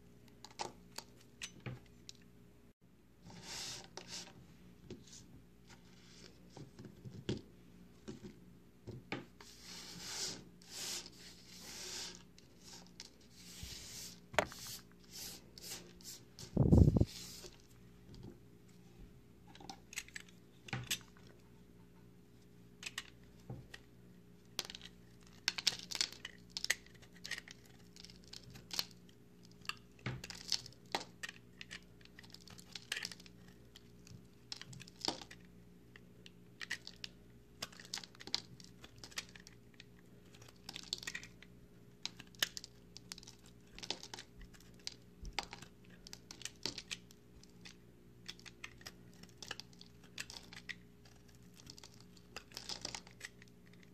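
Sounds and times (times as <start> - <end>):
faint steady hum: 0.0 - 53.9
knife shaving soap bar: 24.5 - 53.9.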